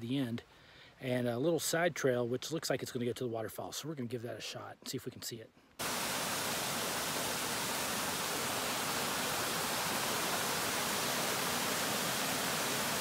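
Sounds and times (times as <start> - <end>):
creek water rushing over boulders: 5.8 - 13.0.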